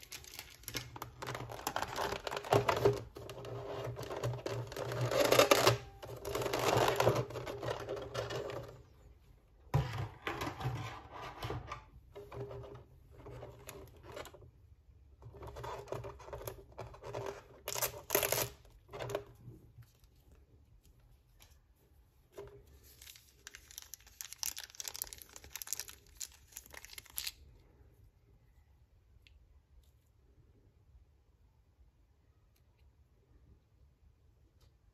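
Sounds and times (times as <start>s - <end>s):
plastic packaging crinkling: 0.0s - 8.7s, 22.5s - 27.6s.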